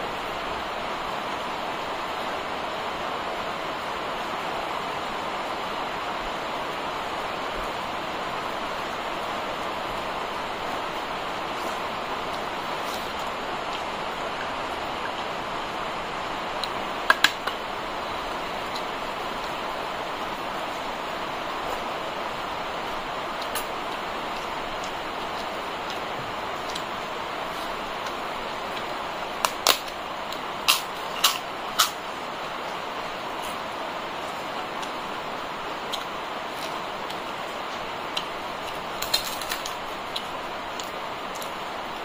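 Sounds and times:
background hiss: 0:00.0 - 0:42.0
papad cracking and crunching: 0:26.6 - 0:32.0, 0:39.0 - 0:39.9.

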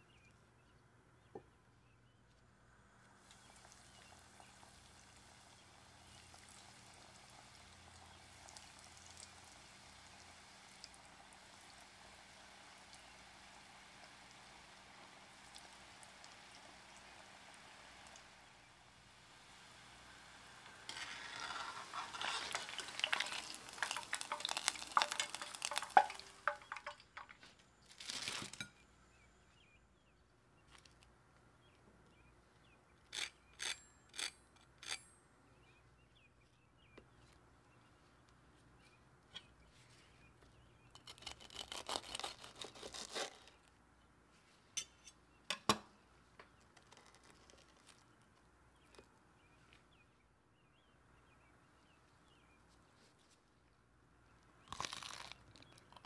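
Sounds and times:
fried food crunching: 0:03.0 - 0:18.4, 0:19.3 - 0:28.7, 0:40.9 - 0:43.7, 0:46.6 - 0:48.3, 0:54.6 - 0:56.0
food sizzling in hot oil: 0:03.2 - 0:27.4
fork tapping crisp crust: 0:20.9 - 0:27.3.

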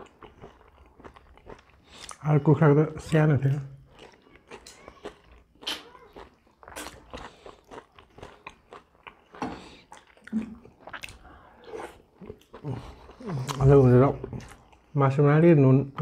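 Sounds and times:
people chewing and crunching: 0:00.0 - 0:15.2
wet mouth clicks: 0:05.6 - 0:05.9.

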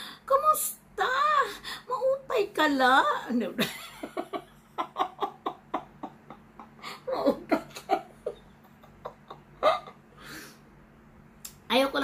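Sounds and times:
woman laughing: 0:03.6 - 0:10.1.

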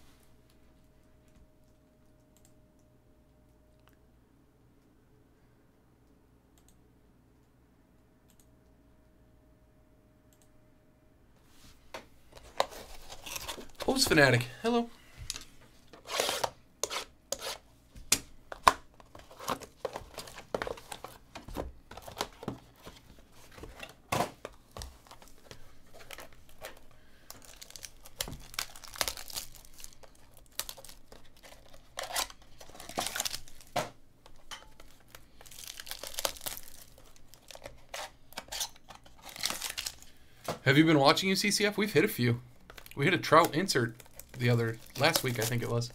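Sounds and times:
foil wrappers crinkling and tearing: 0:12.4 - 0:14.1, 0:24.5 - 0:40.2, 0:42.7 - 0:45.9.

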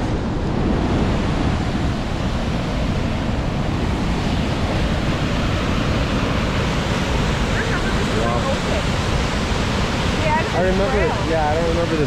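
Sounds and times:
whitewater rushing through gorge: 0:00.0 - 0:12.0.

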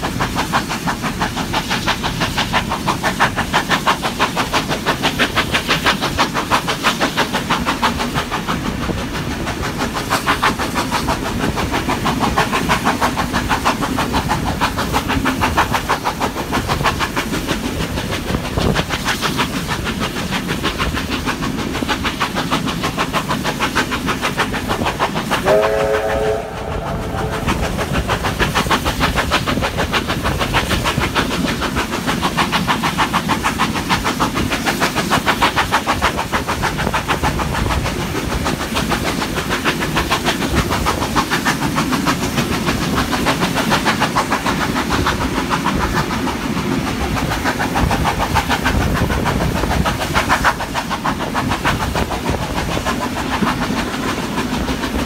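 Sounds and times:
steam train running: 0:00.0 - 0:55.0
steam whistle: 0:25.4 - 0:27.7.

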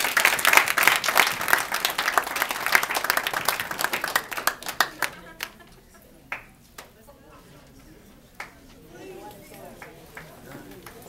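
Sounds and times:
audience applauding: 0:00.0 - 0:06.5, 0:09.4 - 0:11.0.

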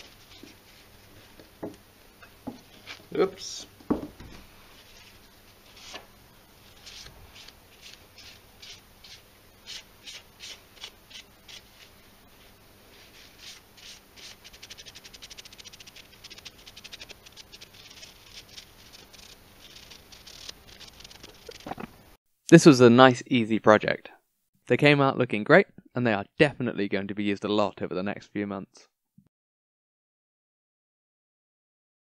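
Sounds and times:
paper towel rubbing wood: 0:06.7 - 0:21.8.

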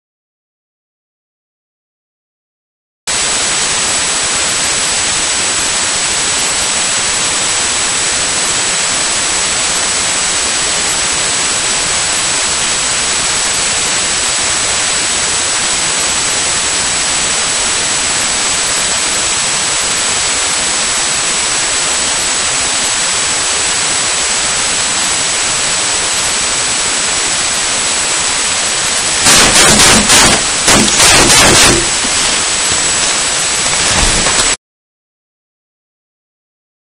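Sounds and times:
static hiss: 0:03.1 - 0:34.6
high whine: 0:22.9 - 0:34.6
handling noise: 0:29.0 - 0:34.6.

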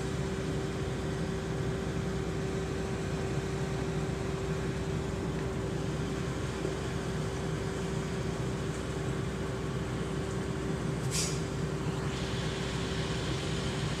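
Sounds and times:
diesel truck engine running: 0:00.0 - 0:14.0
short hiss: 0:11.0 - 0:11.4.

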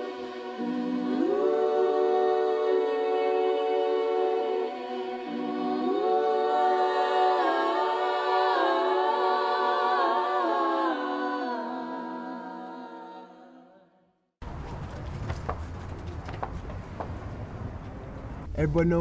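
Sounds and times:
sustained vocal-like chords: 0:00.0 - 0:13.9.

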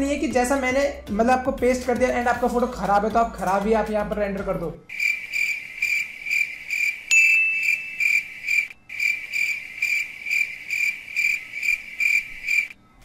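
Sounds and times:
cricket chirping: 0:04.9 - 0:12.8
thin steady tone: 0:04.9 - 0:13.0.

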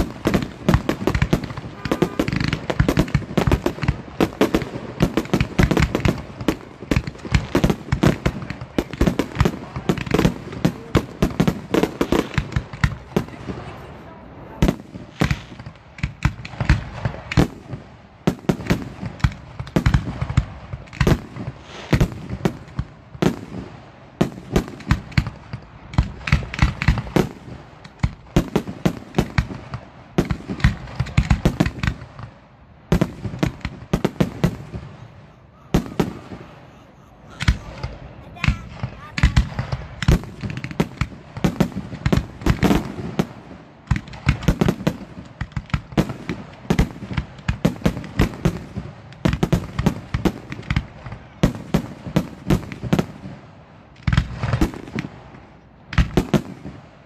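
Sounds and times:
firework shells bursting: 0:00.0 - 0:13.3.

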